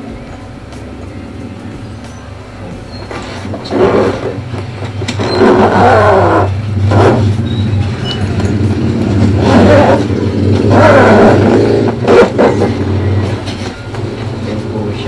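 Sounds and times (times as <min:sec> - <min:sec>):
steady low hum: 0:00.0 - 0:15.0
zipper being pulled open: 0:03.2 - 0:04.4, 0:05.1 - 0:07.3.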